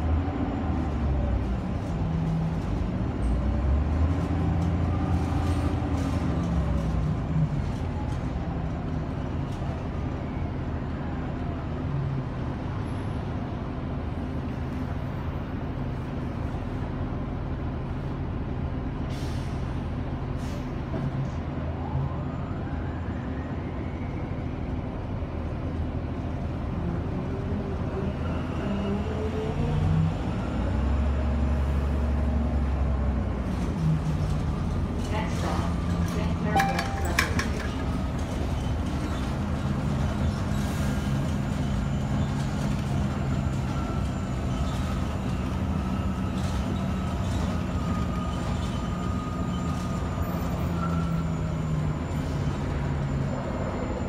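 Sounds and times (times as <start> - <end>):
bus engine drone and whine: 0.0 - 54.0.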